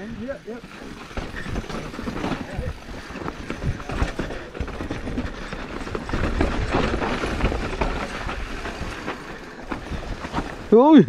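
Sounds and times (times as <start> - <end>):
bike wheels knocking on rocks: 0.0 - 11.0.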